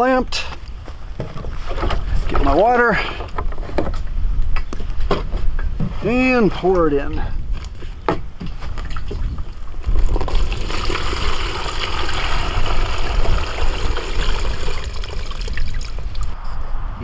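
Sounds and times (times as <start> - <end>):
water pouring into bucket: 9.8 - 16.4.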